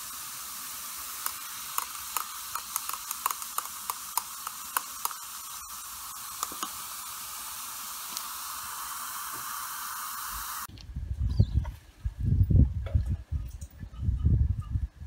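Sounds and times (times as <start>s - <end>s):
chemical reaction fizzing: 0.0s - 10.7s.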